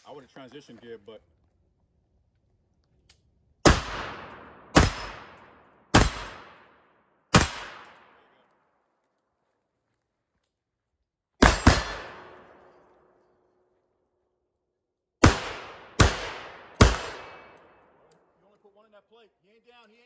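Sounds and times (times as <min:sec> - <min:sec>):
rifle shots: 0:03.6 - 0:08.4, 0:11.4 - 0:13.0, 0:15.2 - 0:18.0.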